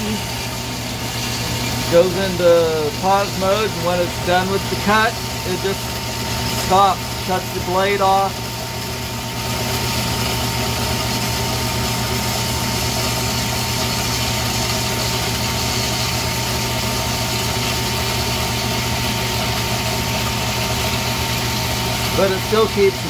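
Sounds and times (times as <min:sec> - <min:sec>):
bandsaw cutting metal bars: 0:00.0 - 0:05.8, 0:06.5 - 0:08.3, 0:21.6 - 0:23.0.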